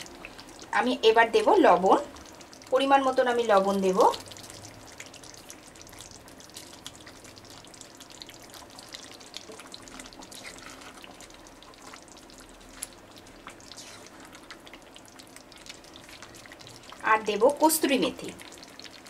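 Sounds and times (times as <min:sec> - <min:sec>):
food sizzling and popping in a pan: 0:00.0 - 0:19.0
spatula stirring: 0:03.6 - 0:17.1.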